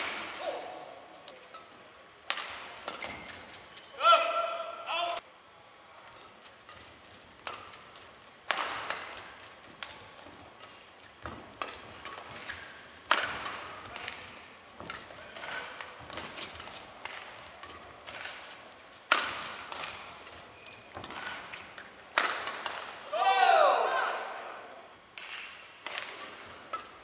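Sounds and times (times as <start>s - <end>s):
racket strikes on shuttlecock: 2.2s - 3.3s, 6.6s - 23.0s, 25.2s - 27.0s.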